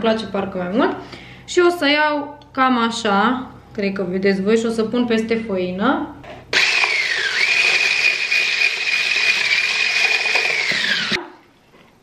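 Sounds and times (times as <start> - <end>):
kitchen mixer motor whine: 6.6 - 11.3.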